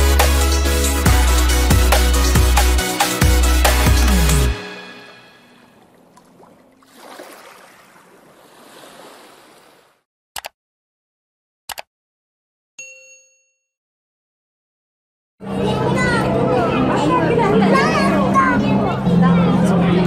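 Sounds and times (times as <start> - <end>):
mouse clicks: 10.4 - 10.6, 11.7 - 11.9
bright bell ding: 12.8 - 13.7.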